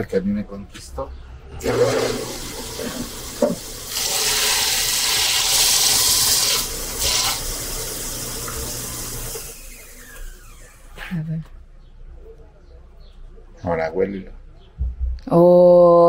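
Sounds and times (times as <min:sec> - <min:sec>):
machine motor hum: 0:01.6 - 0:11.1
leather grinding on sanding wheel: 0:02.5 - 0:11.0.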